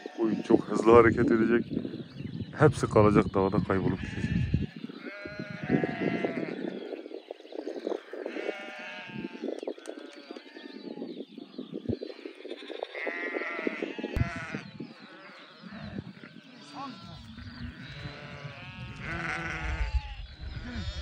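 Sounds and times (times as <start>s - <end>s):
flock of sheep bleating: 0.0s - 1.3s, 3.7s - 6.8s, 8.1s - 11.0s, 12.2s - 21.0s.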